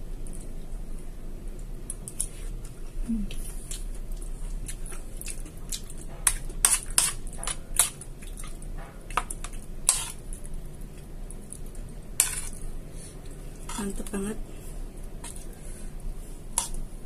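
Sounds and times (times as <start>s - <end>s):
chewing crunches: 1.9s - 12.5s.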